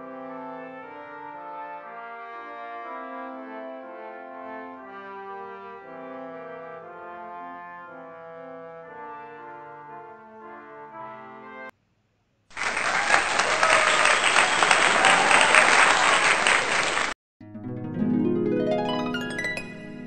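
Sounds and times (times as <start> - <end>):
recorded applause: 12.5 - 17.2
soft instrumental music: 17.4 - 20.0.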